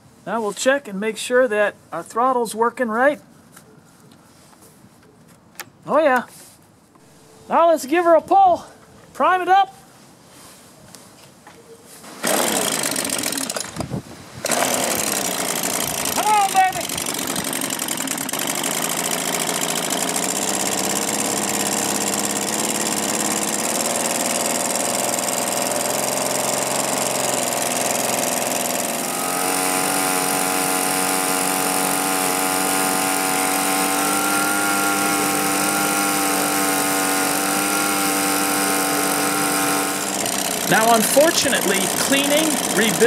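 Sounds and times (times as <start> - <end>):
leaf blower engine running: 12.0 - 43.0
blower fan air rush: 29.0 - 42.8.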